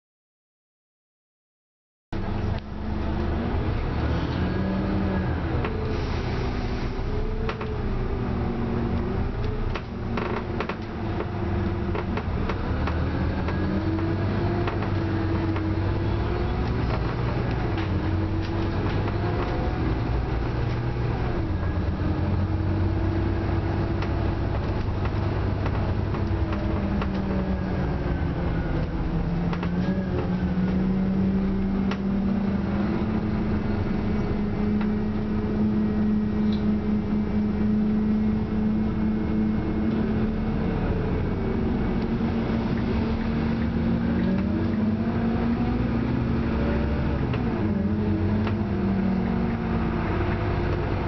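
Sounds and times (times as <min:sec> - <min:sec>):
bus engine running: 0:02.2 - 0:51.0
road noise: 0:02.2 - 0:51.0.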